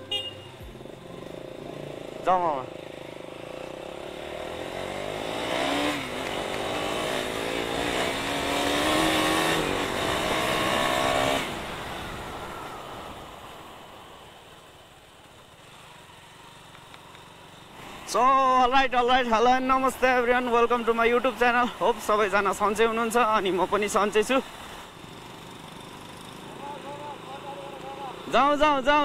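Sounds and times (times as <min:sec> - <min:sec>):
motorcycle engine pulling hard: 0:01.8 - 0:12.1.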